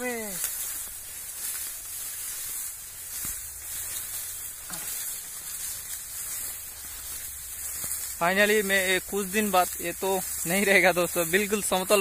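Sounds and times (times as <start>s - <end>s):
rice plants rustling: 0.0s - 12.0s
wind hissing: 0.0s - 12.0s.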